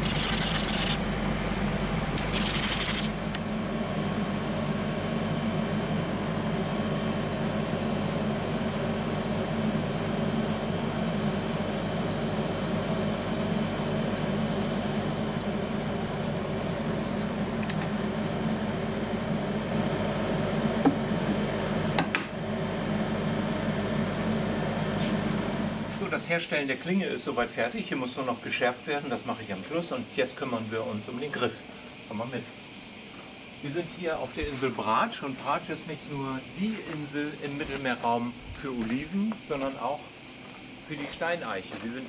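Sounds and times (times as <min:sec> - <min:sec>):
machine humming: 0:00.0 - 0:27.3.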